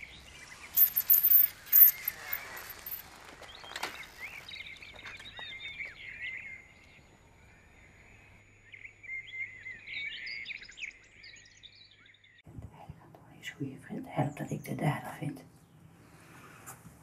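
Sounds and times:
small songbirds chirping: 0.0s - 12.5s
faint outdoor background: 0.0s - 17.0s.

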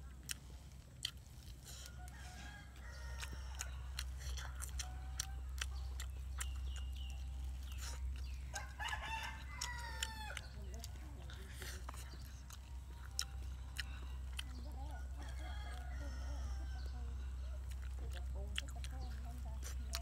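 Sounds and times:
chickens calling: 0.0s - 20.0s
rooster crowing: 1.8s - 4.0s, 8.5s - 10.5s, 14.9s - 17.1s.

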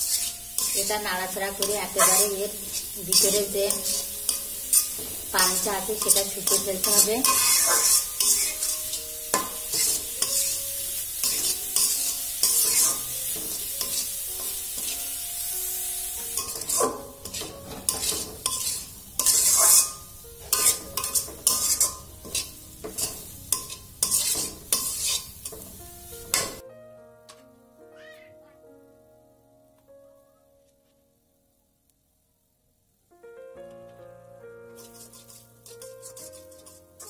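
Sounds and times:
metal spatula scraping pan: 0.0s - 10.6s, 11.2s - 15.1s, 16.3s - 26.6s, 34.8s - 37.0s
carrots sizzling in butter: 0.0s - 26.6s, 34.5s - 37.0s.

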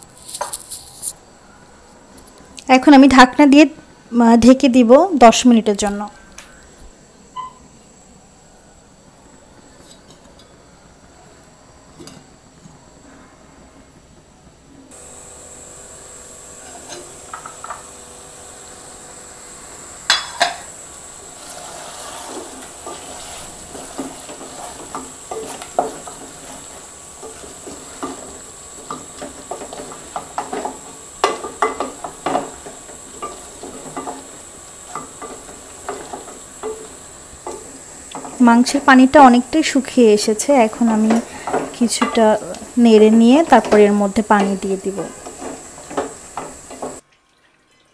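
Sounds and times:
steady sizzle: 0.0s - 47.7s
wooden spatula scraping a pot: 21.2s - 38.9s, 40.1s - 47.0s
spatula knocking against pot: 27.3s - 34.3s.

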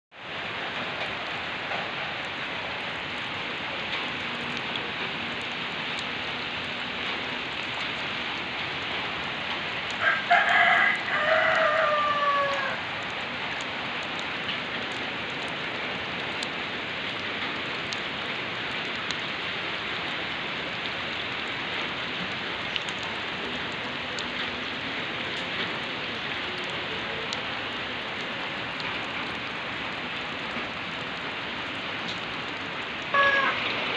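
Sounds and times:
rain falling on puddles: 0.1s - 33.9s
rooster crowing: 10.0s - 12.8s, 33.1s - 33.6s.

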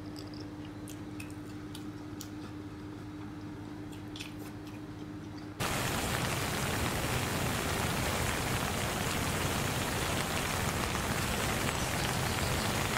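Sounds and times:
steady hiss: 5.6s - 12.9s.

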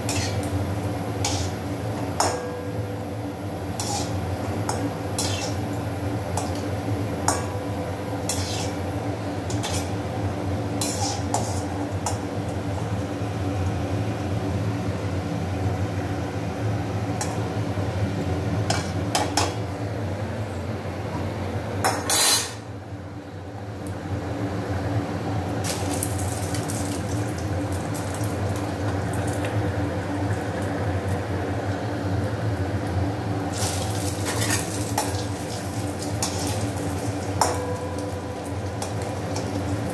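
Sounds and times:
food sizzling in hot oil: 0.0s - 14.0s, 25.6s - 39.9s.

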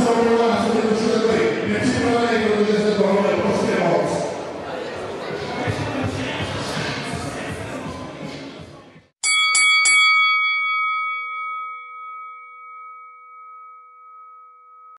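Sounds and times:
crowd noise: 0.0s - 9.1s
music: 5.3s - 9.1s
metal bell ringing: 9.2s - 15.0s.

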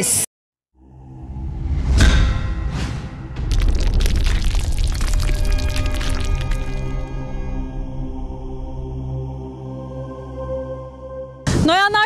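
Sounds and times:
low rumbling swell with boom: 0.8s - 9.5s.

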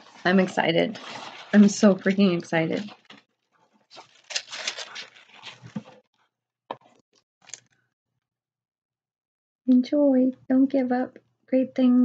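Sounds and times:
tissue paper rustling: 0.0s - 6.0s.

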